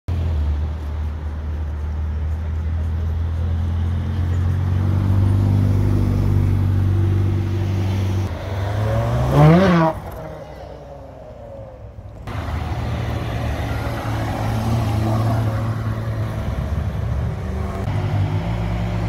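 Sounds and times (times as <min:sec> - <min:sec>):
sports car engine drone: 0:00.2 - 0:19.0
engine revving: 0:03.6 - 0:10.3, 0:12.2 - 0:19.0.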